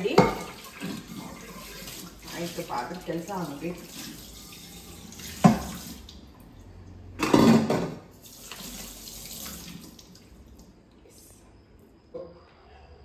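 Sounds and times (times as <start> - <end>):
tap water running into sink: 0.0 - 6.4, 8.2 - 10.7.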